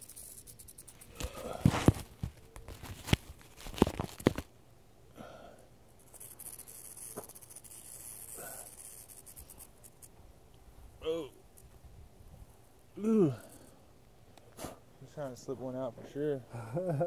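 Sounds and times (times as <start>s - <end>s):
soft rustling: 0.0s - 4.5s
knocks and rubs on microphone: 1.2s - 4.4s.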